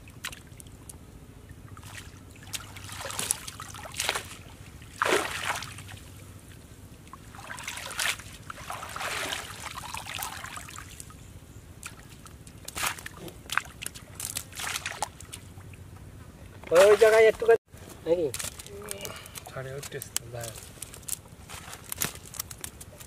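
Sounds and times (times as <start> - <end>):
water trickling: 0.0 - 11.2
water splashing: 1.5 - 6.2, 7.1 - 11.1, 11.8 - 15.8, 16.7 - 17.5.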